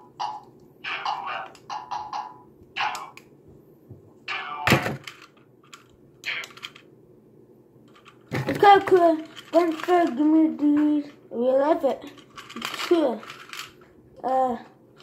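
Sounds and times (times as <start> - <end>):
plastic toy handling rustling: 4.8 - 6.9, 7.9 - 14.0.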